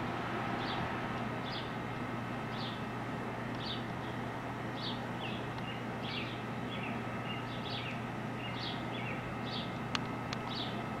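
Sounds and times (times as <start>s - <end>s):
steady low hum: 0.0s - 11.0s
high bird chirps: 4.8s - 9.7s.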